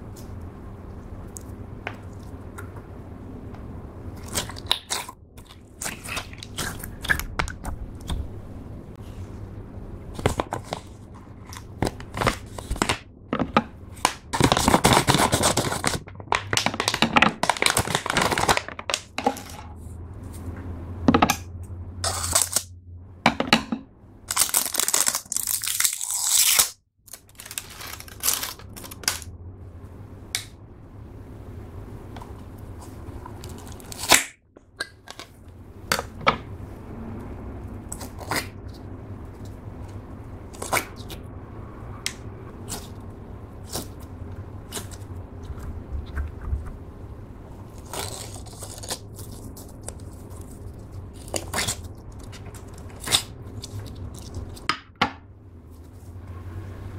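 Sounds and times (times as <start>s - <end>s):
plastic bag crinkling and tearing: 14.0s - 19.6s, 22.0s - 22.7s, 24.3s - 29.3s, 47.7s - 54.7s.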